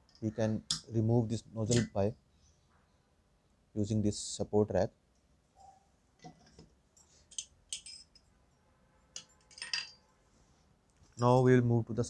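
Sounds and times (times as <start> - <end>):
faint metallic clinks and ticks: 6.2 - 8.4.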